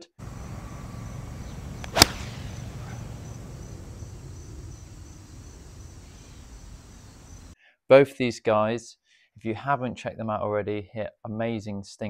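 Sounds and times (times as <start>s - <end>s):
outdoor background hiss: 0.0s - 7.6s
golf club striking ball: 0.2s - 5.0s.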